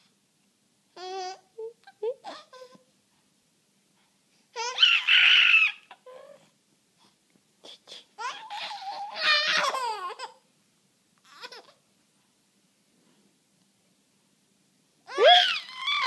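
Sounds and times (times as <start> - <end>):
baby babbling and squealing: 4.6 - 6.4, 8.2 - 10.4, 15.1 - 16.0.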